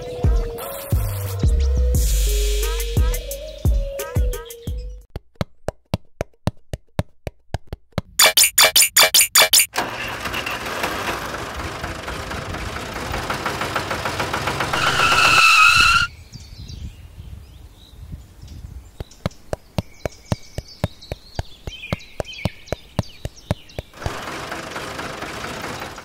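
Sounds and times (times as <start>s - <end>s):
faint high chirps: 8.2s - 9.7s
sharp clicks: 8.2s - 9.7s
toy motor rattling and whining: 14.6s - 16.1s.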